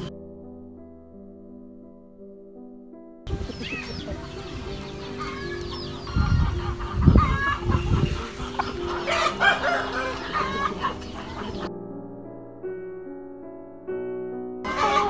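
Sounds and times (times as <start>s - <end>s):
hens clucking: 3.3s - 11.7s, 14.7s - 15.0s
high chirping calls: 3.3s - 11.7s.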